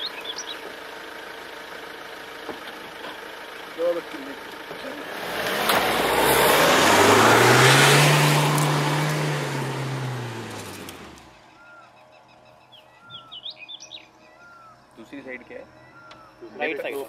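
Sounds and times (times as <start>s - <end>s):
faint bird chirps: 0.0s - 0.7s, 11.4s - 17.0s
diesel engine revving hard: 4.8s - 11.5s
tyres spraying sand: 5.0s - 11.2s.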